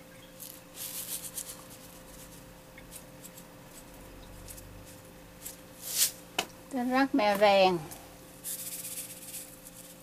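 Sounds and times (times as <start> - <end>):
faint steady hum: 0.0 - 10.0
seeds rustling in jar: 0.4 - 6.2, 8.4 - 10.0.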